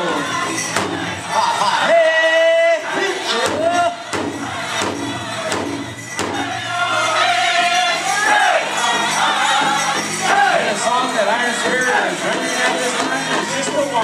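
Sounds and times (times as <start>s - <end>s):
group singing in high voices: 0.0s - 14.0s
big drum beating steadily: 0.7s - 1.4s, 3.4s - 7.0s.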